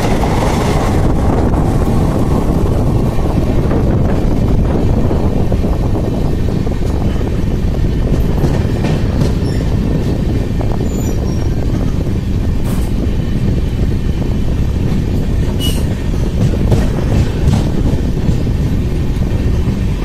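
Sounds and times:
train wheels rumbling on rails: 0.0 - 20.0
high wheel squeals: 15.5 - 16.0.

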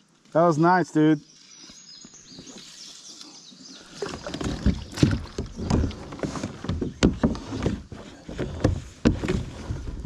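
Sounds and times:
fishing gear rustling: 3.8 - 10.0
knocks against kayak hull: 4.1 - 10.0.

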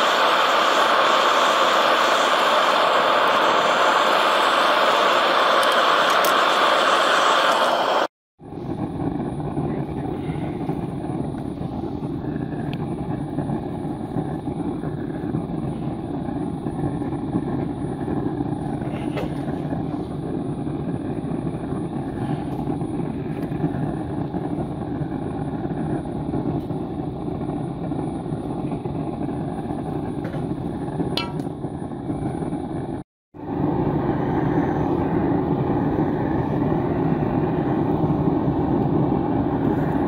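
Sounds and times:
electric blower rushing air: 0.0 - 40.0.

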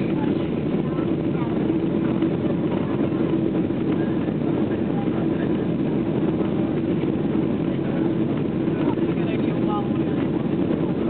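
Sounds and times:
constant low hum: 0.0 - 11.0
engine and airflow rush: 0.0 - 11.0.

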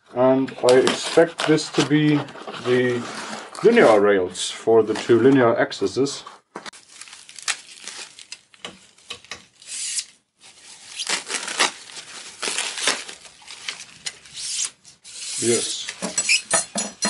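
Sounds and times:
plastic wrapping crinkling and tearing: 0.6 - 4.0, 6.7 - 14.7.

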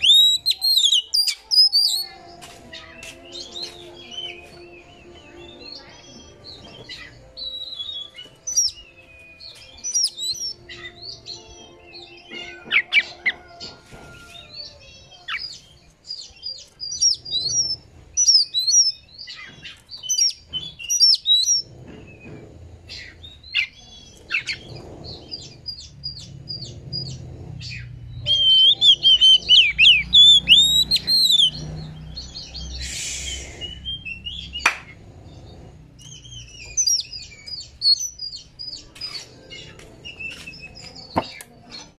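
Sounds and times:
bird singing whistled notes: 0.0 - 2.1, 3.2 - 13.2, 14.9 - 22.2, 22.9 - 34.7, 36.0 - 41.4
bird harsh rasp: 16.8 - 38.2.

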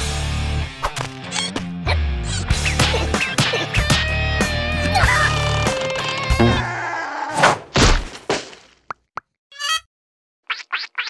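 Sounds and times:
pitched plop effect: 6.4 - 6.7.

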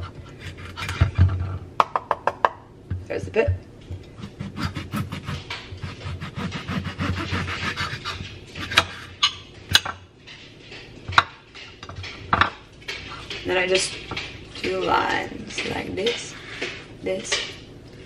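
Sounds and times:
knife sawing through fruit: 4.2 - 9.1.

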